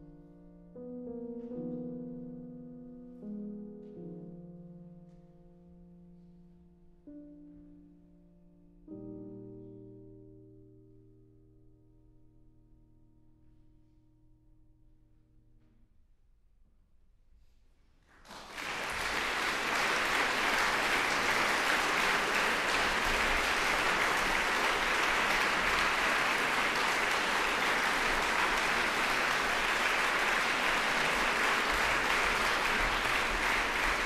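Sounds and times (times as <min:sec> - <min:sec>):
audience applause: 0:18.1 - 0:34.0.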